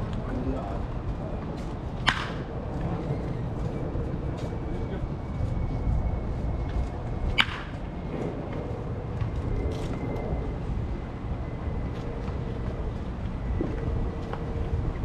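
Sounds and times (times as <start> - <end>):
bat cracking a ball: 2.0 - 2.5, 7.4 - 7.8.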